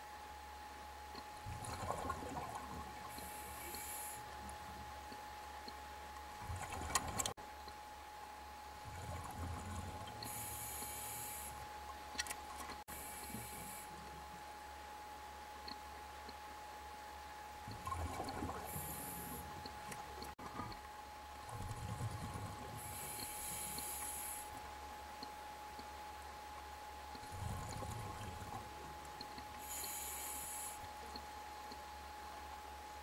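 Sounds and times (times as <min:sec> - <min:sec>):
faint steady tone: 0:00.0 - 0:33.0
exhaled bubbles hissing: 0:01.4 - 0:04.4, 0:17.7 - 0:19.8, 0:21.4 - 0:24.6, 0:29.6 - 0:30.8
muffled inhalation through regulator: 0:03.0 - 0:04.5, 0:10.1 - 0:11.6, 0:12.8 - 0:14.2, 0:17.9 - 0:19.8, 0:21.7 - 0:24.6, 0:29.6 - 0:31.0.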